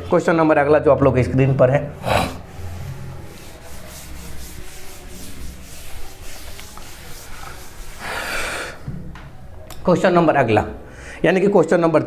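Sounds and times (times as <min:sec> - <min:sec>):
duster scrubbing a chalkboard: 0:02.0 - 0:08.8.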